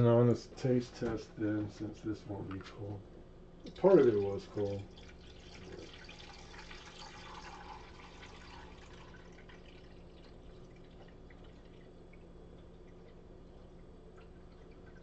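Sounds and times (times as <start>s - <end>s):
water trickling into a pitcher: 3.6s - 15.0s.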